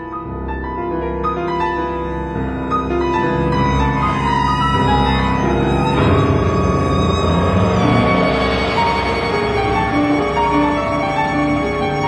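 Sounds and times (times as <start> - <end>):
chamber ensemble playing: 3.4 - 12.0
steady low drone: 3.8 - 12.0.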